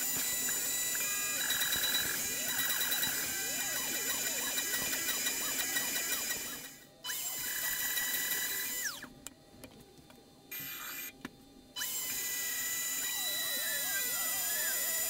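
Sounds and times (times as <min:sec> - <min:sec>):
spindle motor high pitch: 0:00.0 - 0:09.1, 0:10.5 - 0:11.2, 0:11.8 - 0:15.0
stepper motors whining: 0:00.0 - 0:09.1, 0:11.8 - 0:15.0.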